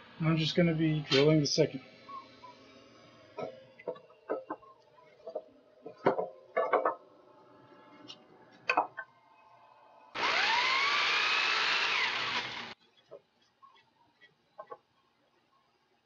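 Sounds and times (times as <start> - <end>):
electric drill boring wood: 10.2 - 12.8.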